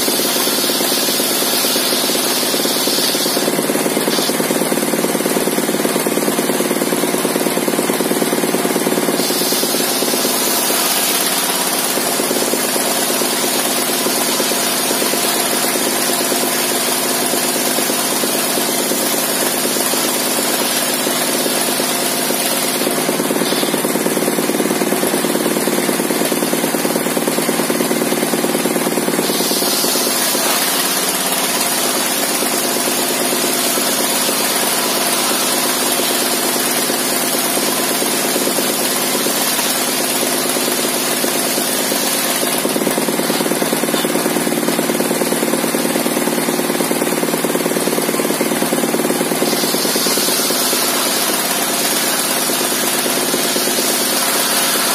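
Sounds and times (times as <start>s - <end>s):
saw blade hissing through wood: 0.0s - 5.4s, 8.2s - 24.3s, 29.0s - 38.5s, 48.7s - 54.9s
stationary engine running: 0.0s - 54.9s.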